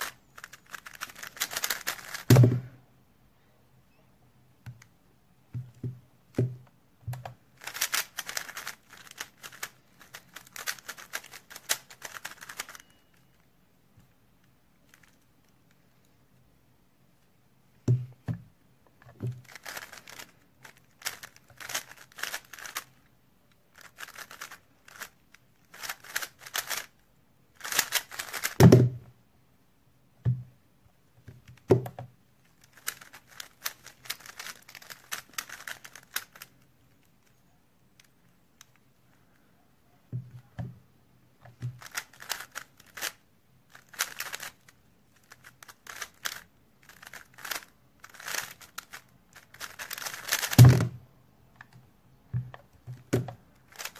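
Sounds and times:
plastic puzzle cube clicking: 0.0s - 2.3s, 7.2s - 13.3s, 19.4s - 23.0s, 23.7s - 26.9s, 27.6s - 28.6s, 32.6s - 37.0s, 41.7s - 50.8s, 52.5s - 53.9s
dull thumps: 2.3s - 2.8s.

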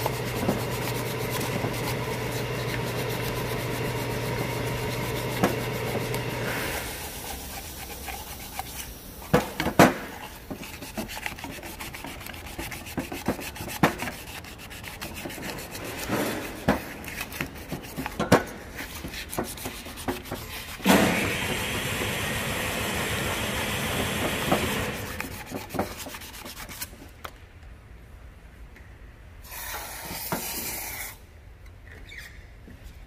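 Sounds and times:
sandpaper rubbing metal: 0.0s - 9.3s, 10.1s - 20.9s, 24.9s - 27.0s.

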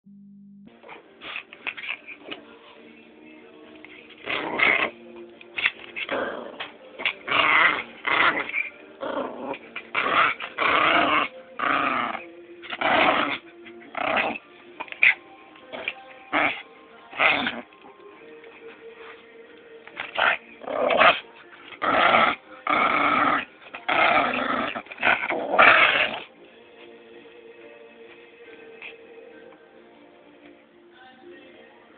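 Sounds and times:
puppy growling: 4.1s - 17.8s, 19.9s - 26.3s.

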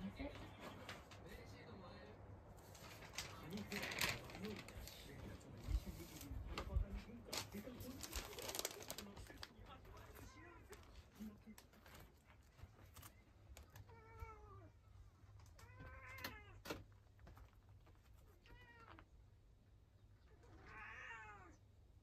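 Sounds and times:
cat meowing: 13.7s - 14.8s, 15.5s - 16.7s, 18.3s - 19.1s, 20.2s - 21.6s.

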